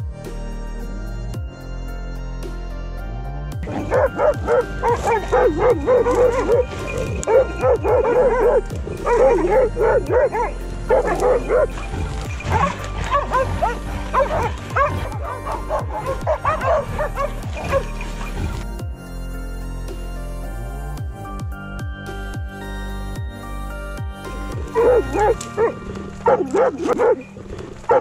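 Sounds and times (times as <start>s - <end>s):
dog barking and yelping: 3.7s - 18.5s, 24.7s - 27.3s.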